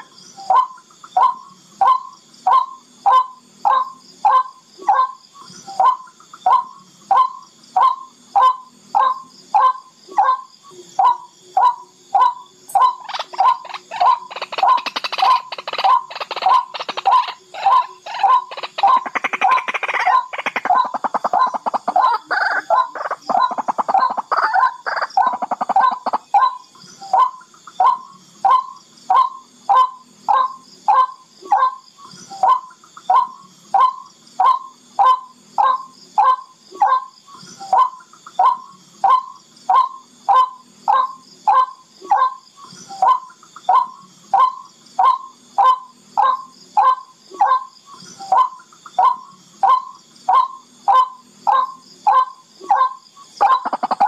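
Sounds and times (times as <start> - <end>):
bird harsh chattering call: 12.7 - 26.6.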